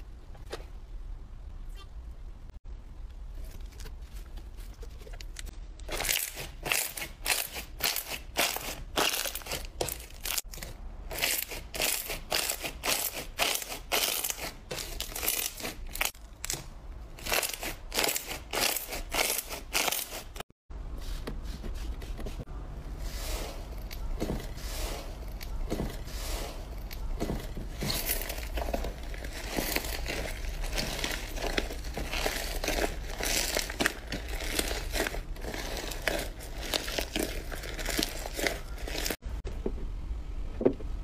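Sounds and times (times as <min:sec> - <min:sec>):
hands squeezing slime: 0:29.2 - 0:39.2.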